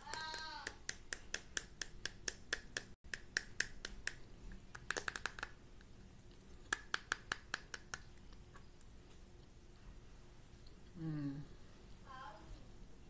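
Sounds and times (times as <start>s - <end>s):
fingernails tapping on plastic cup: 4.8s - 5.5s.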